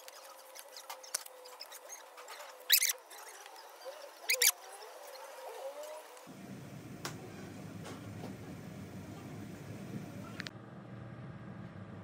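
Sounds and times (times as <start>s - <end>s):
short high squeaks: 0.0s - 6.1s.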